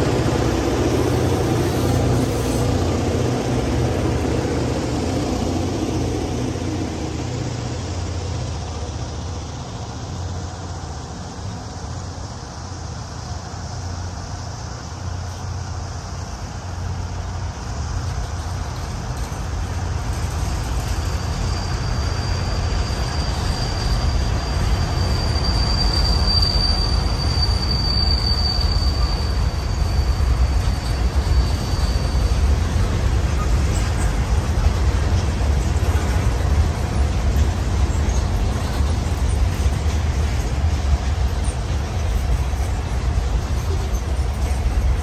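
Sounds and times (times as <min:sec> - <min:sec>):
freight train wheels rumbling on rail: 0:00.0 - 0:45.0
high wheel squeal: 0:19.8 - 0:45.0.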